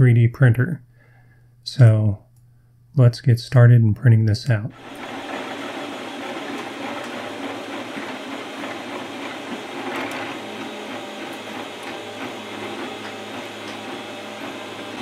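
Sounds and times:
stepper motors whirring and buzzing: 4.8s - 15.0s.

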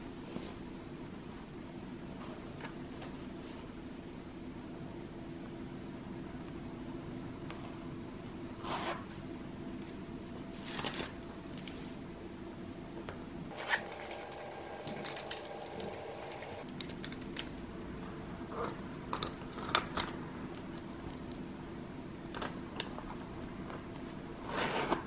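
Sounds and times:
faint steady hum: 0.0s - 25.0s
pencil cases rustling: 13.5s - 16.7s.

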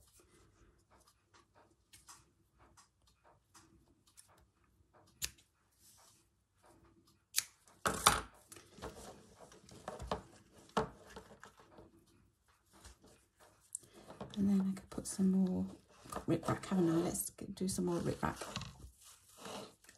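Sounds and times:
scissor snip: 7.3s - 7.6s.

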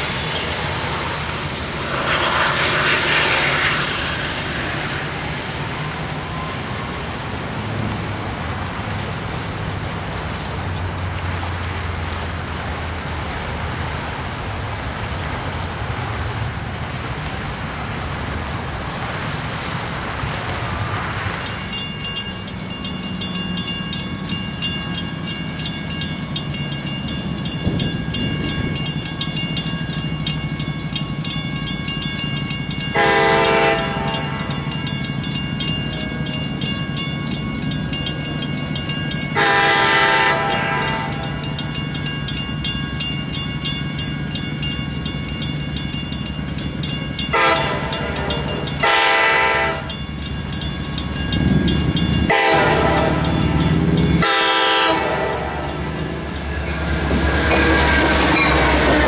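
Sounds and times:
crossing warning bell ringing: 0.0s - 1.3s, 21.1s - 59.0s
cars passing: 0.0s - 59.0s
train horn blasts: 32.9s - 34.5s, 39.4s - 41.3s, 47.3s - 49.9s, 52.2s - 55.8s.

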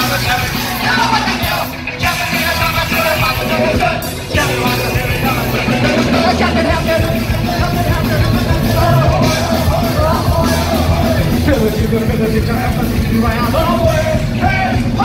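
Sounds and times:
ska punk band playing loud: 0.0s - 15.0s.

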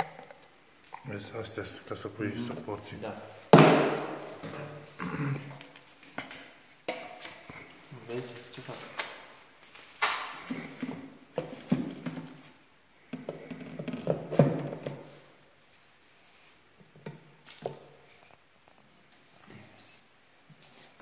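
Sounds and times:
plastic tubes knocking and clicking: 13.1s - 15.0s.

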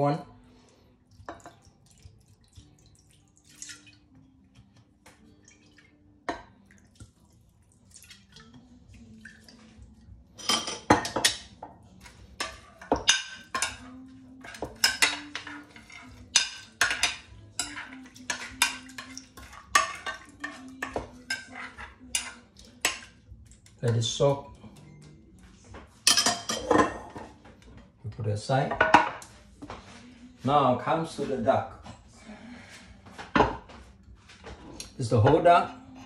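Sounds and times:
metal ladle clinking on glass dish: 26.0s - 27.2s.

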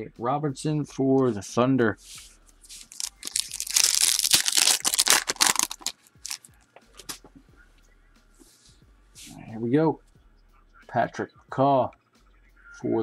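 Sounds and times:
foil wrapper tearing and crinkling: 2.7s - 6.5s.

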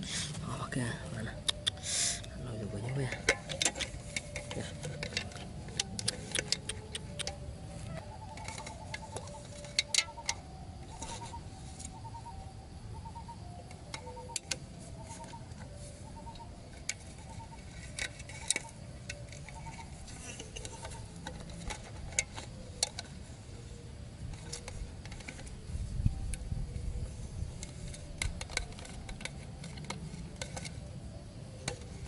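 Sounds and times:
clicks and taps of can and stakes: 3.3s - 7.4s.

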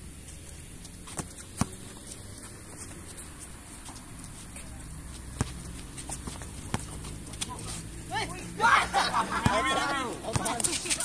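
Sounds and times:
basketball bouncing on concrete: 1.0s - 3.0s, 4.6s - 7.6s, 9.4s - 11.0s.

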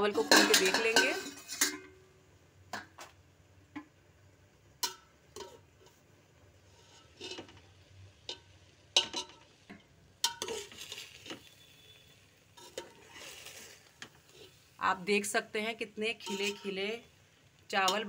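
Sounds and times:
spoon clinking against pot: 0.2s - 1.9s, 10.2s - 11.6s, 16.2s - 16.8s
spoon stirring rice in pot: 4.8s - 14.7s, 16.1s - 16.8s.

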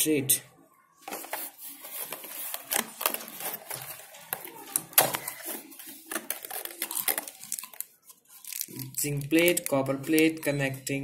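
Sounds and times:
plastic bag rustling: 1.1s - 10.2s
plastic bottles clicking and knocking: 2.0s - 10.6s.

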